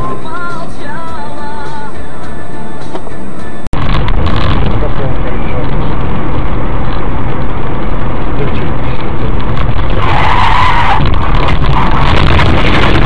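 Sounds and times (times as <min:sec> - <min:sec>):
car road and engine rumble: 0:00.0 - 0:13.0
tyre skid: 0:09.4 - 0:13.0.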